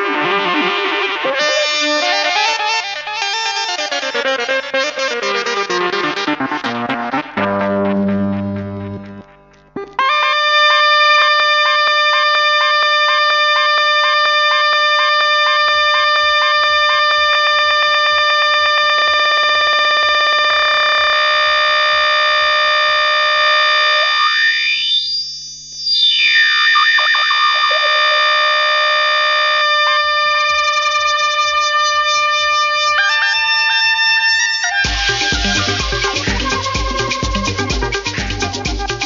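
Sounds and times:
house music with synthesizer chord: 0.0 - 12.8, 27.2 - 39.0
effects sweep: 0.0 - 13.2, 15.3 - 39.0.

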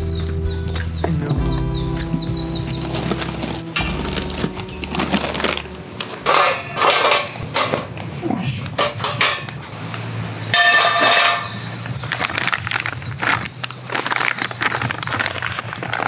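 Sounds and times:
steel grill plates clanking: 3.4 - 8.0, 8.7 - 11.7
ringing metal clang: 6.0 - 7.7.

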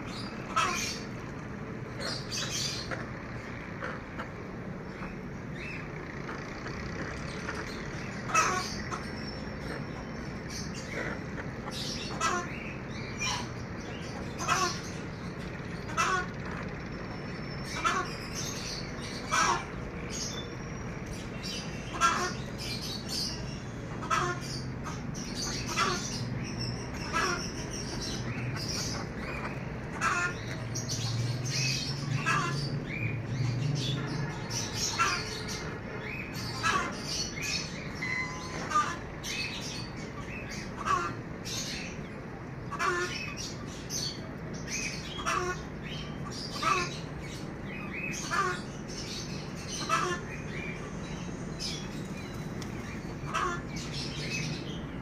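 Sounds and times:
goose calling: 0.4 - 1.1, 7.3 - 10.0, 10.8 - 15.0, 15.8 - 16.5, 17.7 - 20.3, 21.7 - 22.6, 23.9 - 26.2, 27.0 - 31.0, 32.1 - 32.7, 34.0 - 41.9, 42.7 - 44.1, 44.9 - 47.1, 48.0 - 48.7, 49.6 - 50.5, 53.1 - 54.0
hens clucking: 0.4 - 5.3, 6.0 - 10.1, 15.8 - 16.8, 17.7 - 18.2, 19.2 - 20.3, 21.4 - 22.6, 23.8 - 32.8, 33.8 - 48.8, 49.6 - 51.0, 51.6 - 54.2.

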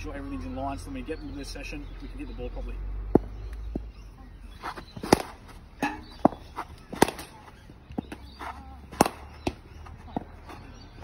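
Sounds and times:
cricket bat striking balls: 3.1 - 3.9, 4.6 - 11.0.

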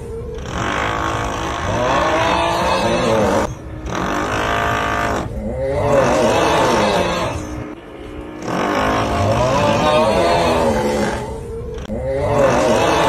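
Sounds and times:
groaning snore: 0.2 - 13.0
steady drilling noise: 0.3 - 5.4, 8.3 - 11.2.

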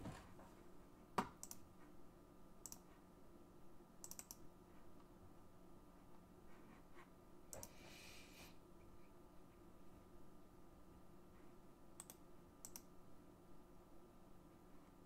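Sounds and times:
faint electrical hum: 0.0 - 15.0
computer mouse and keyboard clicks: 1.2 - 1.6, 2.6 - 2.9, 4.0 - 4.4, 7.5 - 7.8, 12.0 - 12.9.

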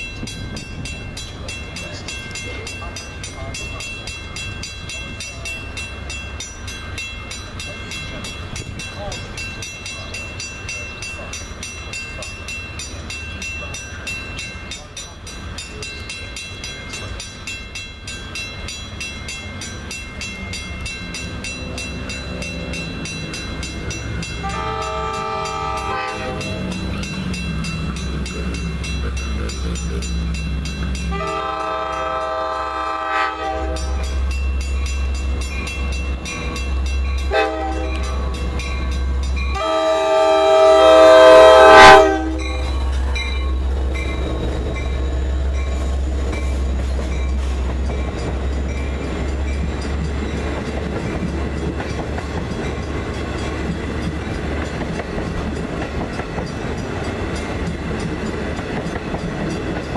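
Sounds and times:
diesel locomotive engine rumbling: 0.0 - 59.9
train air horn chord: 24.4 - 26.6, 31.1 - 34.0, 37.3 - 38.1, 39.6 - 42.6.

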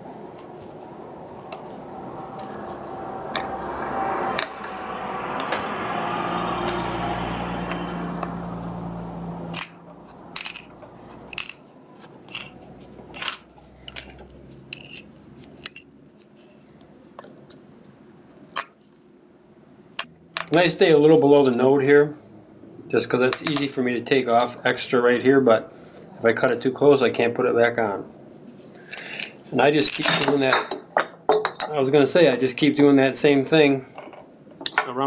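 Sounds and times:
rushing sound with low hum: 0.0 - 11.3.

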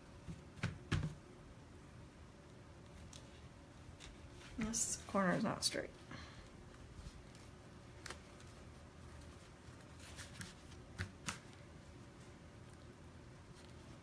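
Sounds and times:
fabric rustling: 6.6 - 14.0.

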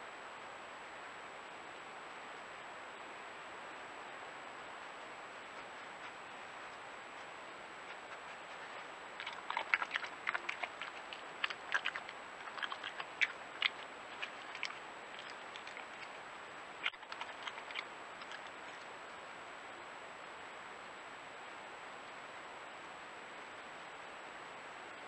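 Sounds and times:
steady hiss: 0.0 - 25.0
badger crunching peanuts: 7.9 - 18.9.

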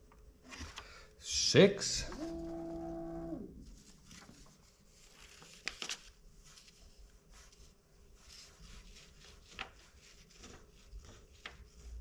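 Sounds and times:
paper rustling: 3.6 - 12.0.

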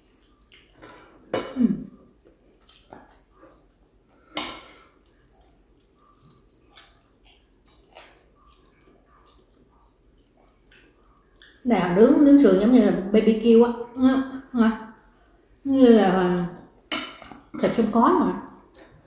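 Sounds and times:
wet chewing and lip-smacking: 0.0 - 0.9, 1.9 - 11.7.

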